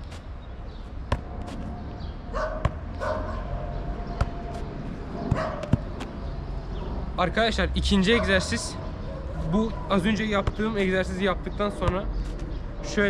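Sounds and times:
foot thudding on ball: 1.1 - 1.6, 2.6 - 3.0, 4.1 - 6.1
dog barking: 2.3 - 3.6, 5.3 - 5.8, 8.1 - 9.9.

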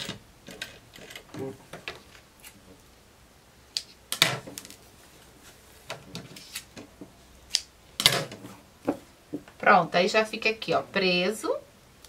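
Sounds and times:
fabric rustling: 4.4 - 6.7.

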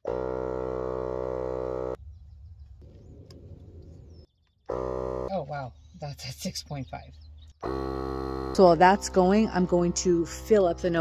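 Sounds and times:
air compressor buzzing: 0.0 - 2.0, 4.6 - 5.3, 7.6 - 11.0.

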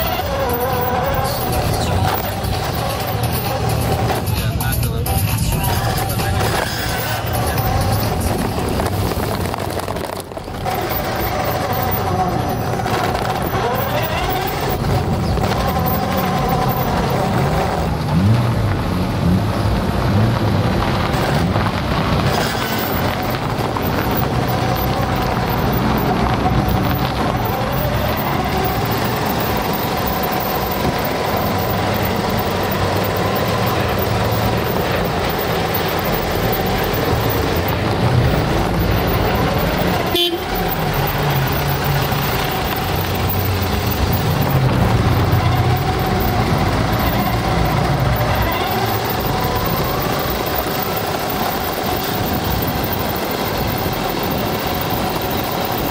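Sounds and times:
rc car motor whining: 0.0 - 4.3, 10.6 - 17.6, 22.5 - 55.9
tyres on gravel: 0.0 - 55.9.

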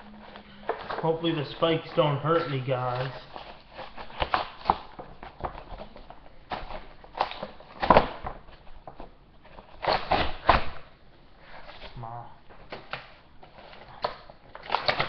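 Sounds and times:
packaging crinkling and tearing: 0.2 - 8.7, 9.5 - 10.9, 12.6 - 15.0.

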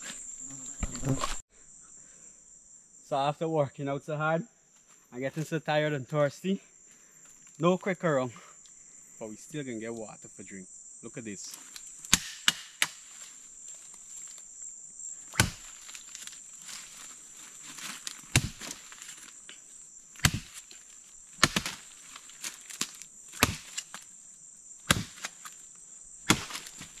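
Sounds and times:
insects droning: 0.0 - 27.0
machete chopping vine: 12.0 - 13.3, 15.3 - 17.0, 17.8 - 19.6, 20.2 - 20.8, 21.4 - 24.1, 24.8 - 25.6, 26.2 - 27.0.

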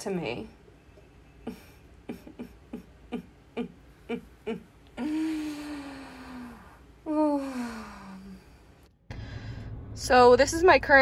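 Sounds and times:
woman humming: 1.4 - 8.5.

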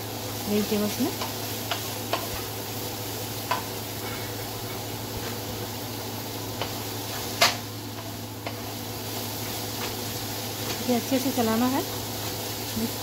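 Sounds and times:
vegetables sizzling: 0.0 - 13.0
spatula knocking pan: 1.1 - 2.5, 3.4 - 3.7.

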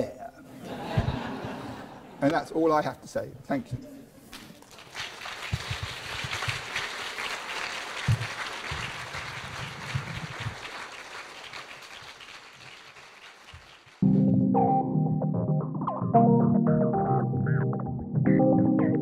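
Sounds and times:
audience applauding: 4.5 - 14.0.

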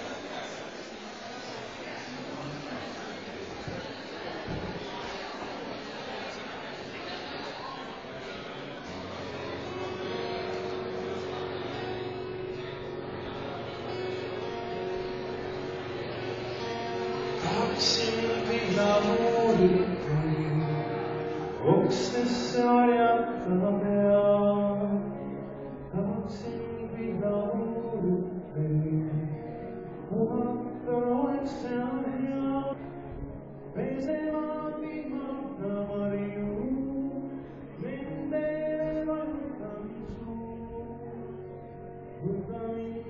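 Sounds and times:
acoustic guitar: 0.0 - 43.0
man singing folk song: 16.2 - 33.1, 33.7 - 43.0.

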